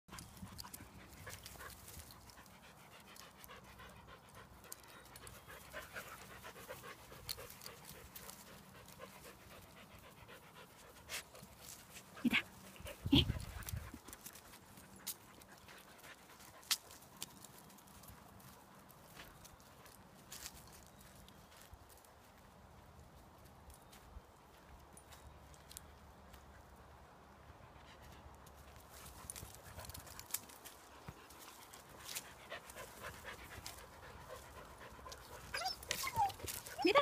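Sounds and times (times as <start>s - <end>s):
dog panting: 0.1s - 16.7s, 30.9s - 37.0s.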